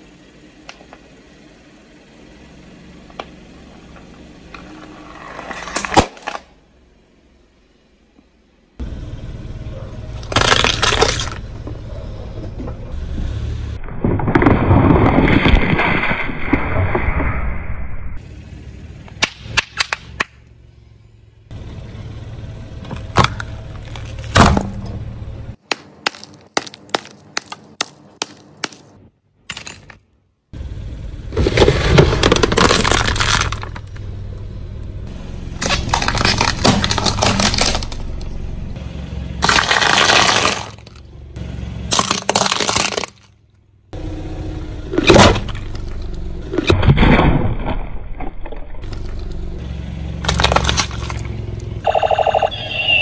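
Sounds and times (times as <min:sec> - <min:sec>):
low car rumble: 0:00.0 - 0:53.0
objects crunching under tyre: 0:03.1 - 0:06.6, 0:10.2 - 0:12.8, 0:13.8 - 0:17.1, 0:22.9 - 0:24.9, 0:25.6 - 0:30.2, 0:31.3 - 0:34.1, 0:35.4 - 0:38.8, 0:39.4 - 0:41.1, 0:41.8 - 0:43.5, 0:44.9 - 0:53.0.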